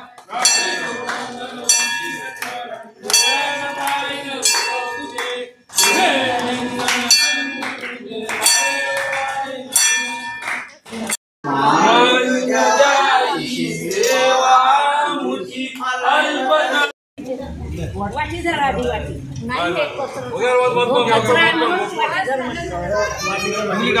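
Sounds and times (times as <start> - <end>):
hand clapping: 0.0 - 11.2
voices of worshippers: 0.0 - 24.0
temple bell ringing: 0.4 - 10.8.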